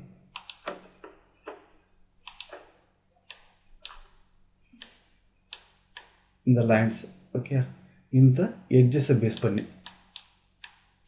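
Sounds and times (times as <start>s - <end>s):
computer mouse clicking: 0.3s - 1.6s, 2.2s - 4.2s, 4.8s - 6.2s, 9.3s - 11.0s.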